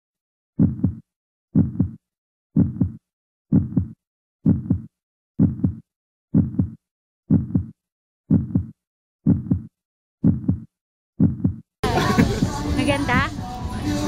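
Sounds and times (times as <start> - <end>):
heartbeat thumps: 0.6 - 1.0, 1.6 - 2.0, 2.6 - 11.7, 12.4 - 13.4.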